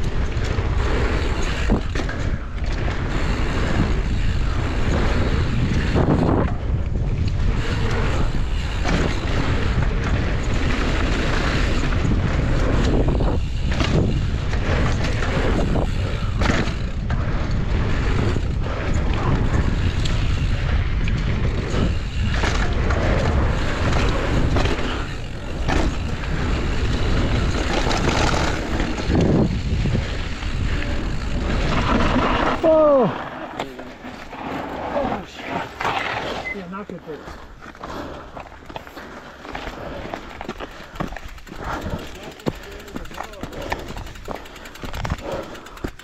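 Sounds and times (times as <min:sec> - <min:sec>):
wind on camera microphone: 0:00.0 - 0:32.6
bike knocking and rattling: 0:00.0 - 0:46.0
bike tyres rolling on gravel: 0:00.0 - 0:46.0.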